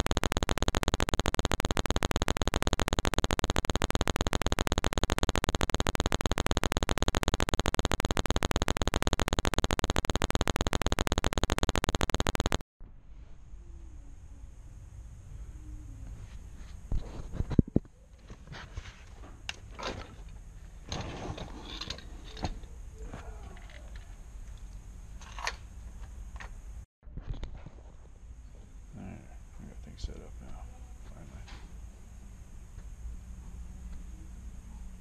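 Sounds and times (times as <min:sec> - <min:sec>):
rapid even audio stutter: 0:00.0 - 0:12.6.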